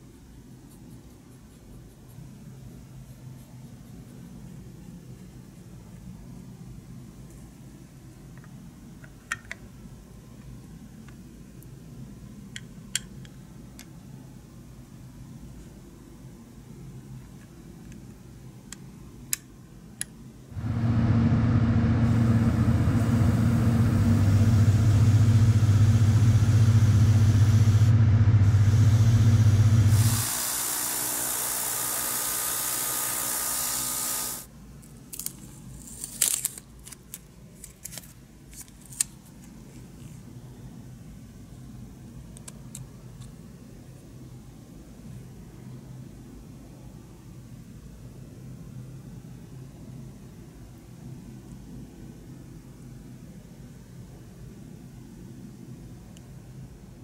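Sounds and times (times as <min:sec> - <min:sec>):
air compressor humming: 0:20.6 - 0:34.5
airbrush hissing: 0:22.0 - 0:34.5.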